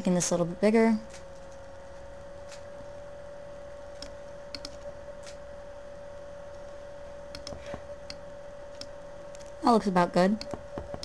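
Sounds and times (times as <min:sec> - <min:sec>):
faint hum: 0:00.0 - 0:11.0
computer mouse clicks: 0:03.9 - 0:05.4, 0:07.3 - 0:09.5.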